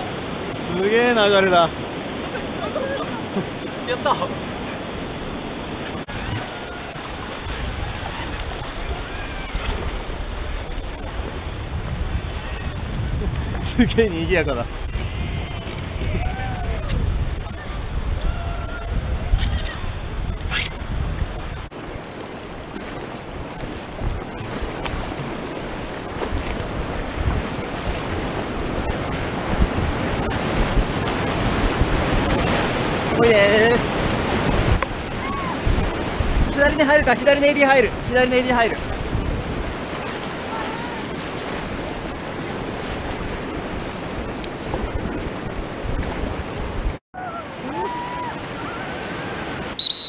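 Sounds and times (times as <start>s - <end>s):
wind buffeting microphone: 0.0s - 47.0s
whitewater rushing: 0.0s - 50.0s
faint paddle splashes: 21.8s - 29.4s.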